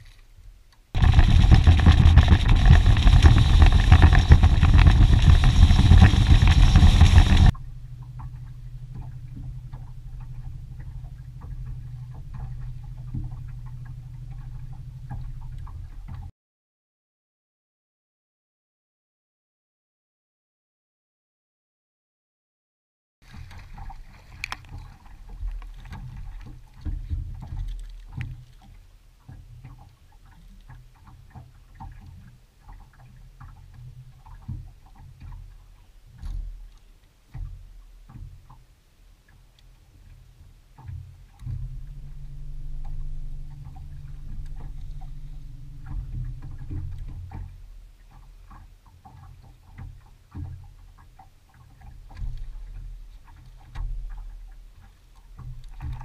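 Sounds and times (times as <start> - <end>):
clicks and knocks of fishing gear: 0.0 - 0.3, 23.2 - 33.6, 43.5 - 56.0
constant low rumble: 0.0 - 16.3, 23.2 - 56.0
water lapping against boat hull: 0.0 - 16.3, 23.2 - 56.0
steady low hum: 0.3 - 16.3, 23.3 - 56.0.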